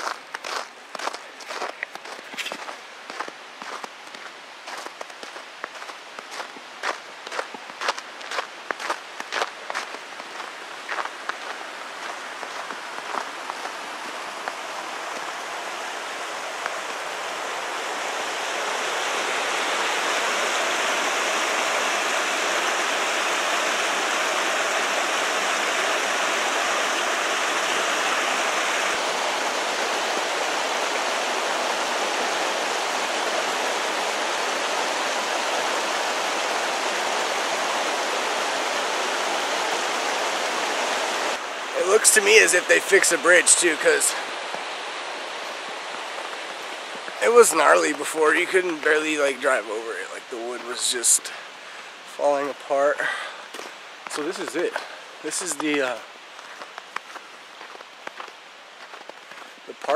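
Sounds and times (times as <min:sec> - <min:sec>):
footsteps on snowy road: 0:00.0 - 0:15.9, 0:45.3 - 0:47.2, 0:53.5 - 0:59.6
creek rushing over rocks: 0:00.0 - 0:59.9.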